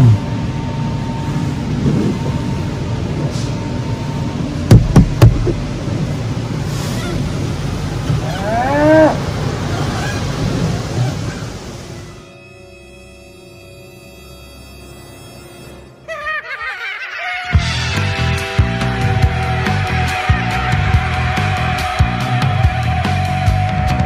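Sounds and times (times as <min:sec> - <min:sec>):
low rumble: 0:00.0 - 0:08.4
sharp knocks: 0:04.7 - 0:05.6
drawn-out moaning call: 0:05.4 - 0:13.0.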